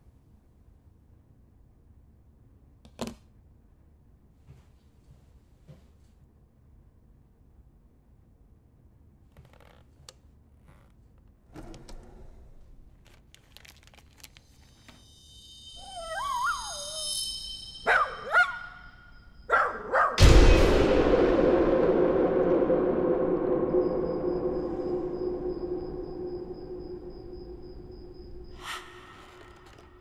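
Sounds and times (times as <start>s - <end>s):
high wailing screech: 15.2s - 19.4s, 20.2s - 30.0s
loud ringing hit: 15.3s - 19.5s, 20.2s - 29.1s.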